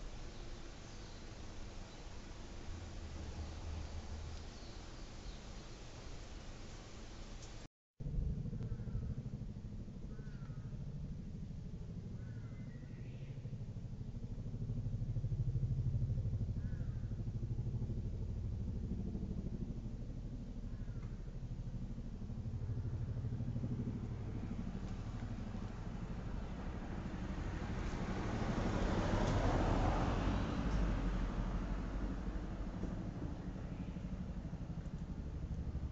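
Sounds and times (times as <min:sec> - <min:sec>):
helicopter rotor drone: 0:08.0 - 0:35.9
car approaching: 0:23.4 - 0:35.9.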